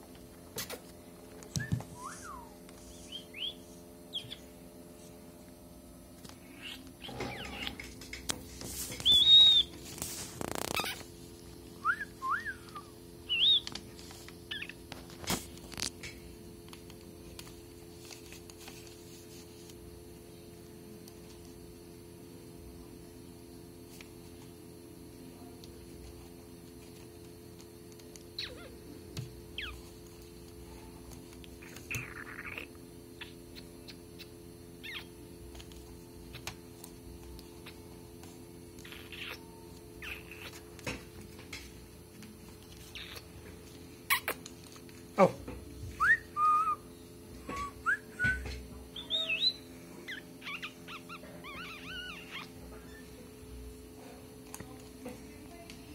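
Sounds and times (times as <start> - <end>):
electrical hum: 0.0 - 55.9
parakeet whistling: 1.6 - 4.5, 9.0 - 9.8, 11.8 - 13.7, 32.0 - 35.1, 46.0 - 53.0
parakeet squeak: 6.4 - 7.8, 9.0 - 9.7, 10.5 - 11.0, 11.9 - 13.6, 14.5 - 14.8, 28.4 - 28.7, 31.9 - 35.1, 38.8 - 40.6, 42.9 - 43.3, 49.0 - 53.0.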